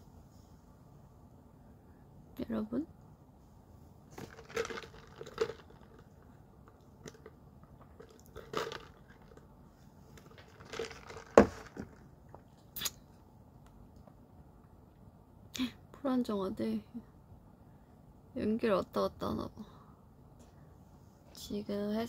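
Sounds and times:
plastic cup rustling and crunching: 4.1 - 9.5, 10.1 - 12.0.

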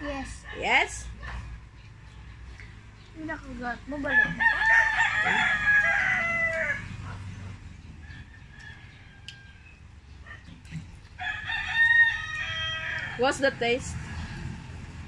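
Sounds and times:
rooster crowing: 4.0 - 7.0, 8.0 - 9.8, 11.2 - 13.3.

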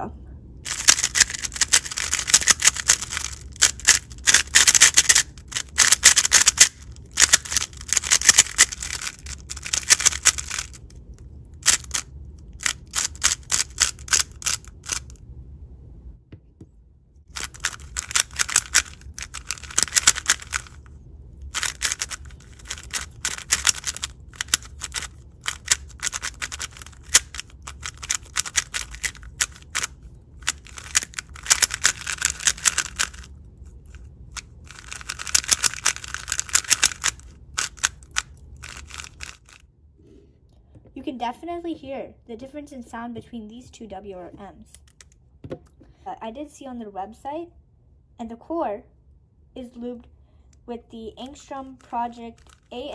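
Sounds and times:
rapid clicking of puzzle cube turns: 0.7 - 10.9, 11.6 - 15.1, 17.3 - 20.9, 21.5 - 33.3, 33.9 - 39.6, 52.4 - 52.7.

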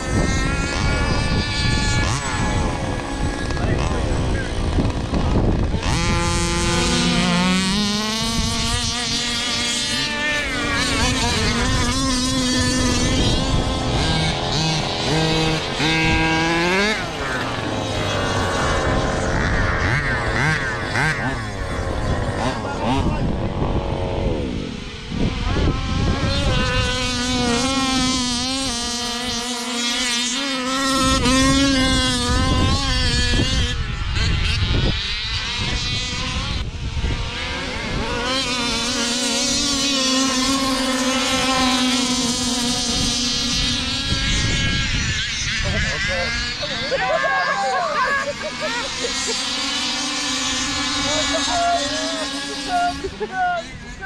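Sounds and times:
steady drone: 0.0 - 54.0
toy car motors revving: 0.0 - 54.0.

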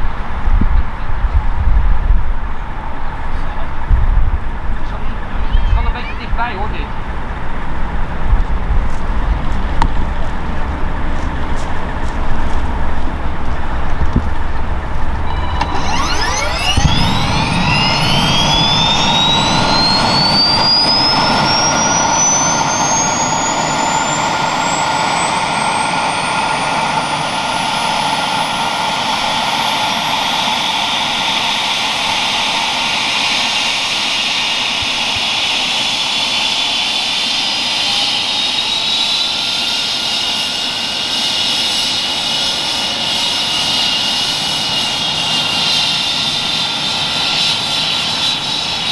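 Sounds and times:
helicopter turbine whine: 0.0 - 48.9.

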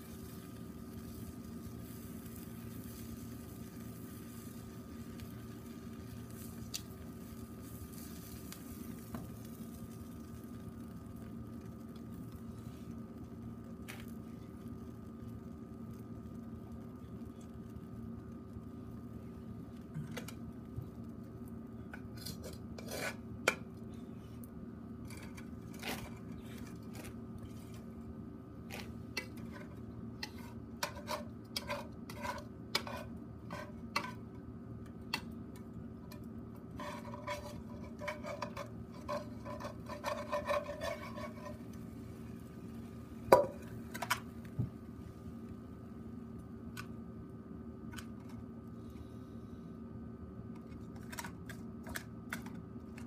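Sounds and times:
steady low hum: 0.0 - 53.0
metal tongs scraping grill: 21.9 - 23.6, 28.7 - 34.2, 36.7 - 41.8.

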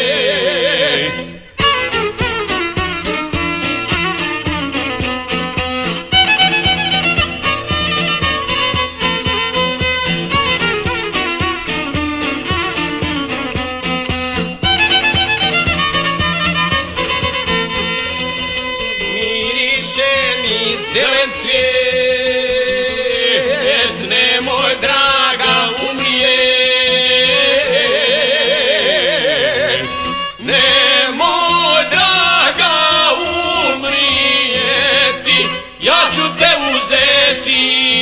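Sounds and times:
men singing folk song: 0.0 - 1.4, 18.8 - 38.0
plucked lute: 0.0 - 38.0
violin: 0.0 - 38.0.

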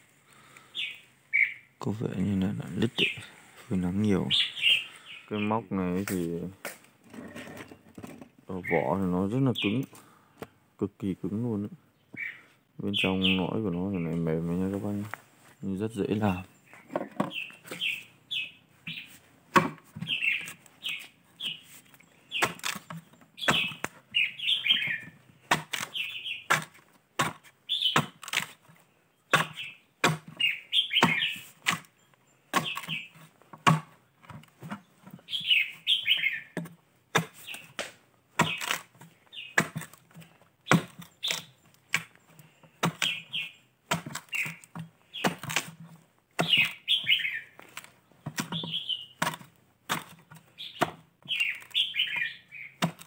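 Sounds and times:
bird chirping: 0.0 - 26.7, 27.6 - 53.0
chisel chopping palm log: 18.9 - 21.6, 22.3 - 53.0.

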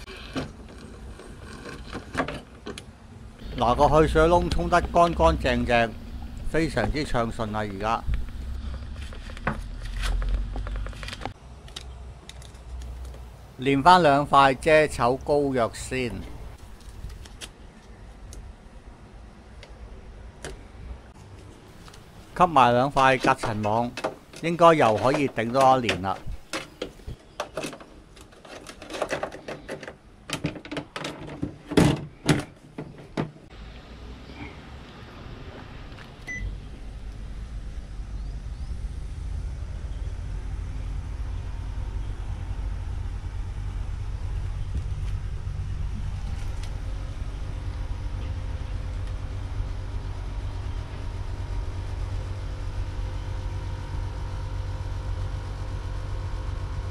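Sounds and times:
air conditioner humming: 2.5 - 9.8, 18.5 - 27.3, 36.3 - 56.9
plastic clicks and knocks: 23.4 - 33.4.

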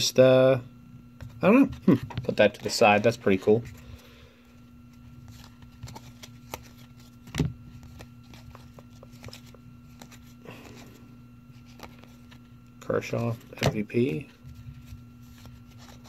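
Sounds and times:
faint steady hum: 0.0 - 16.0
cards flipping and rustling: 4.8 - 16.0.

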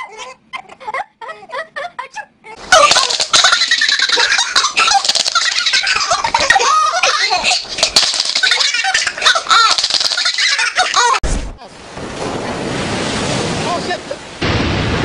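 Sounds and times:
baby laughing: 0.0 - 11.2.

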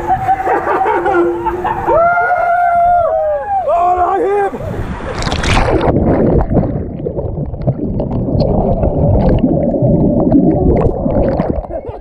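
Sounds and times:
underwater churning and bubbles: 4.6 - 12.0
water splash: 4.8 - 12.0.

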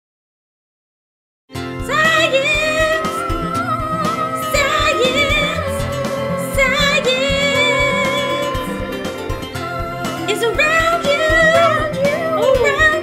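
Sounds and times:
instrumental backing music: 1.5 - 13.0
person singing: 1.8 - 13.0.

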